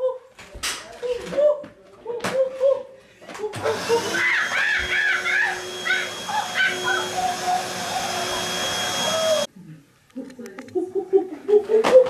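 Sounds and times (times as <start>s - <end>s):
high wavering vocal cries: 3.5s - 9.5s
vacuum cleaner whining hum: 3.5s - 9.5s.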